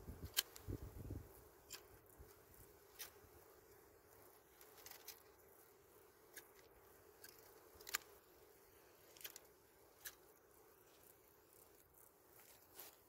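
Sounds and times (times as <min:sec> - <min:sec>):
faint steady hum: 0:00.0 - 0:13.0
dry twigs snapping and clicking: 0:00.2 - 0:00.7, 0:04.6 - 0:05.3, 0:06.3 - 0:08.2, 0:09.0 - 0:10.2.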